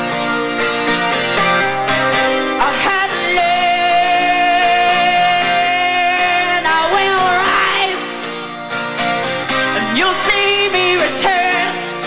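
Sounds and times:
guitar accompaniment: 0:00.0 - 0:12.0
woman singing: 0:02.6 - 0:08.2, 0:09.8 - 0:12.0.

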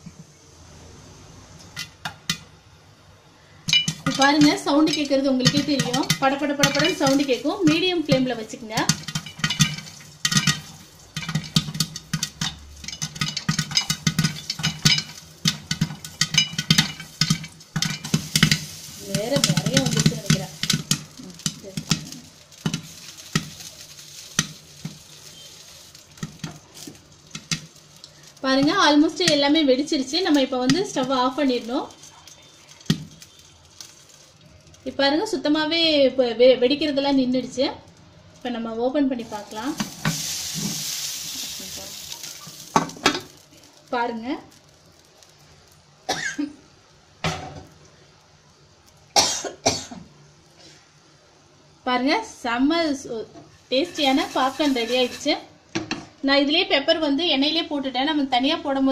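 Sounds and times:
popcorn popping: 0:01.6 - 0:02.6, 0:03.6 - 0:35.0, 0:37.3 - 0:50.2, 0:53.7 - 0:56.2
faint oil sizzle: 0:03.2 - 0:35.7, 0:36.6 - 0:49.2, 0:50.1 - 0:55.6
person coughing: 0:46.1 - 0:46.6, 0:49.2 - 0:50.0.

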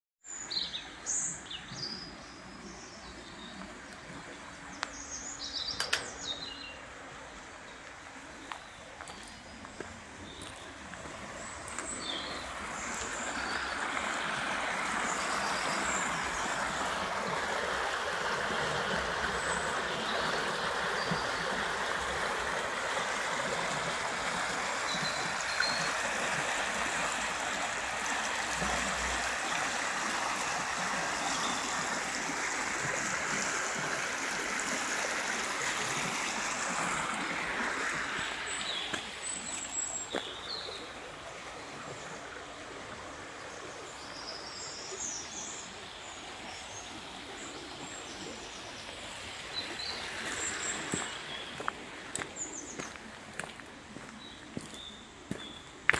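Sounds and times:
water rushing over weir: 0:10.7 - 0:43.9.

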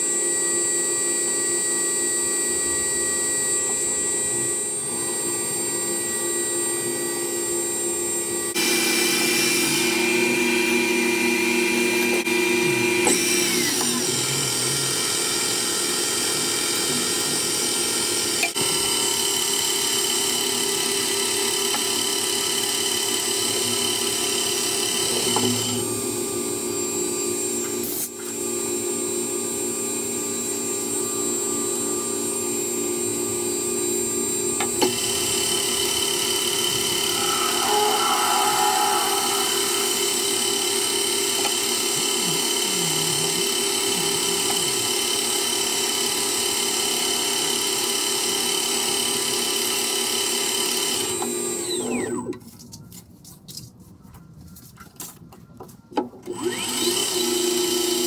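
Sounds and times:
metal lathe whining: 0:00.0 - 0:28.4, 0:33.3 - 0:52.3, 0:56.3 - 0:58.0
drill boring into metal: 0:01.4 - 0:26.0, 0:34.3 - 0:52.3, 0:56.3 - 0:58.0.

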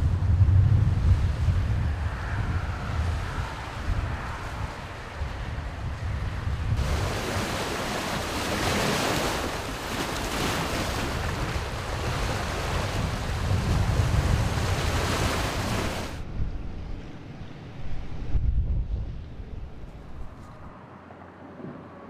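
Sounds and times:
wind buffeting microphone: 0:00.0 - 0:20.8
waves breaking over rocks: 0:06.7 - 0:16.2.

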